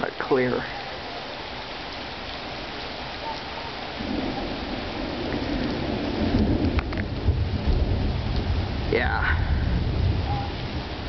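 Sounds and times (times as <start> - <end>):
steady rain falling: 0.0 - 11.0
low roll of thunder: 3.2 - 11.0.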